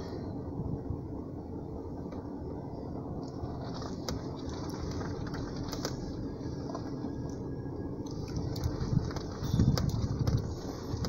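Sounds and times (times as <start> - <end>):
car cabin engine hum: 0.0 - 11.0
steering wheel clicks and rustles: 3.2 - 11.0.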